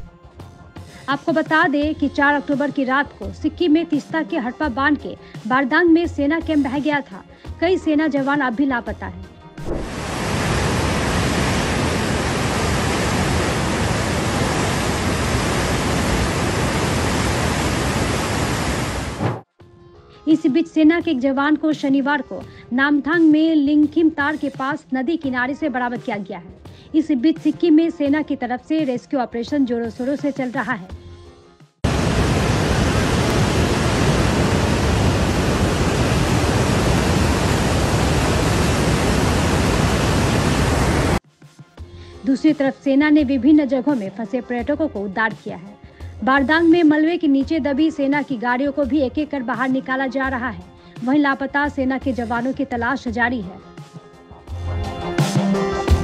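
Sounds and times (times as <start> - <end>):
flood water rushing: 9.6 - 19.2, 31.9 - 41.2.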